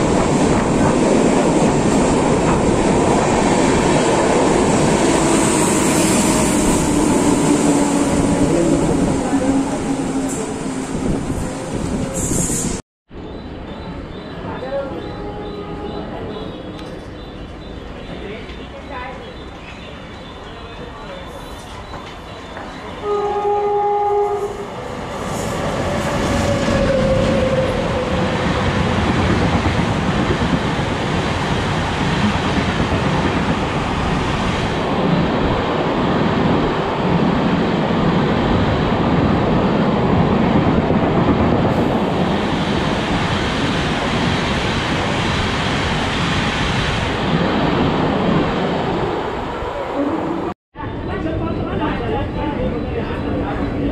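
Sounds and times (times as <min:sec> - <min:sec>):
train horn blast: 0:23.0 - 0:24.9.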